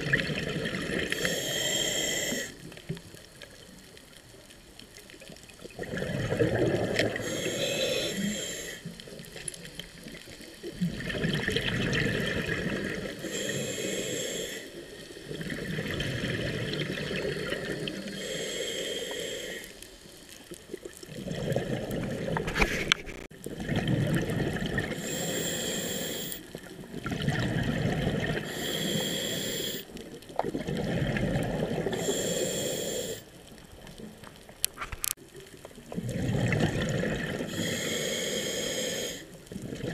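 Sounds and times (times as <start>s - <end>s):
bubbling exhaust underwater: 0.0s - 3.9s, 5.2s - 19.6s, 20.7s - 39.9s
hissing regulator inhale: 1.1s - 2.6s, 7.1s - 8.9s, 13.2s - 15.0s, 17.6s - 19.9s, 25.0s - 26.5s, 28.4s - 29.9s, 31.8s - 33.3s, 37.5s - 39.4s.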